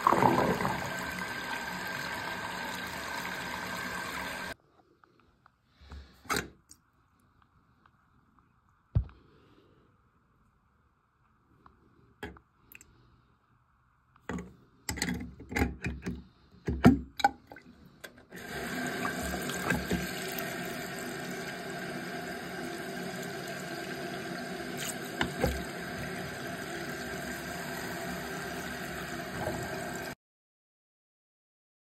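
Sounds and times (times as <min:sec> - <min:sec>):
faucet running into sink: 0:00.0 - 0:04.6, 0:18.3 - 0:30.2.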